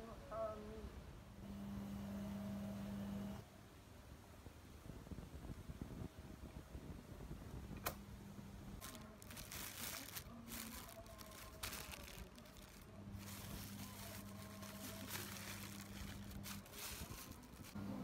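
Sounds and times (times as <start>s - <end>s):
plastic bags crinkling: 8.8s - 17.8s.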